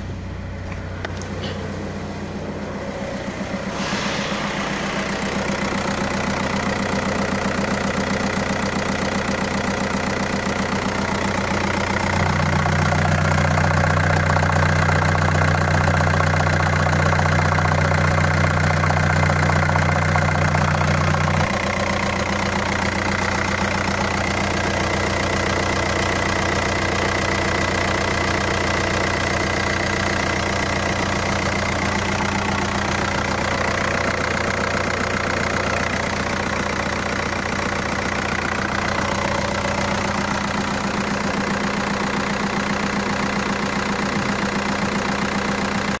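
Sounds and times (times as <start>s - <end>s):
diesel engine idling: 0.0s - 46.0s.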